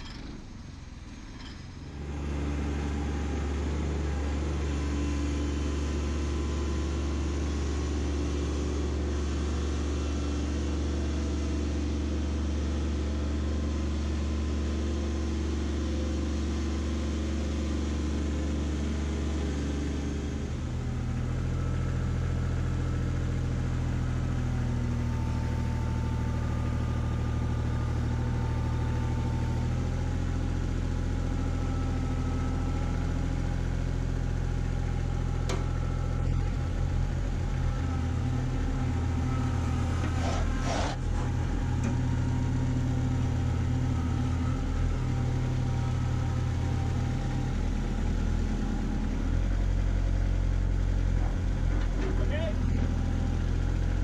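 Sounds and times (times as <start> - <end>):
tractor diesel engine revving: 38.7 - 50.7.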